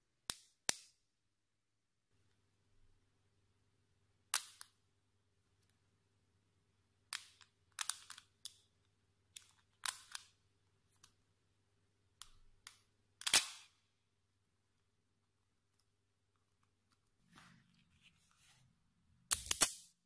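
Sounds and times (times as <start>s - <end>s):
magnets snapping together: 13.2s - 13.7s, 19.3s - 20.0s.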